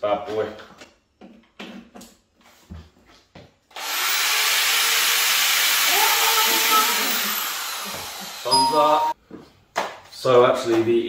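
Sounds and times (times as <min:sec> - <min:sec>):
electric drill running: 0:03.7 - 0:08.5.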